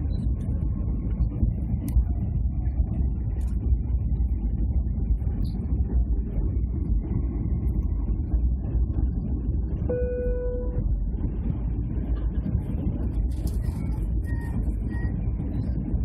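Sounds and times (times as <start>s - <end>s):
airplane cabin engine rumble: 0.0s - 16.0s
short steady tone: 9.9s - 10.9s.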